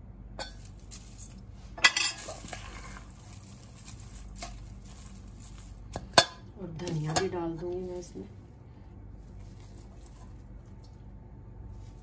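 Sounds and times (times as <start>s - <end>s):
spoon scraping mixing bowl: 2.0s - 6.1s.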